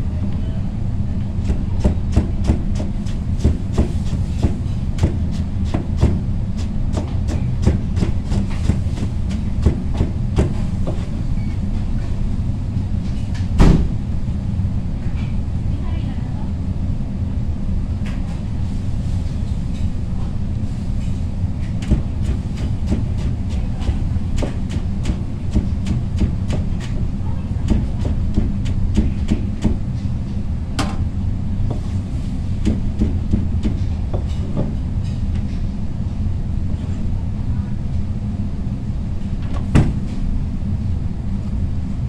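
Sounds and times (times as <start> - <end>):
knife chopping on cutting board: 1.4 - 11.1, 21.8 - 29.8.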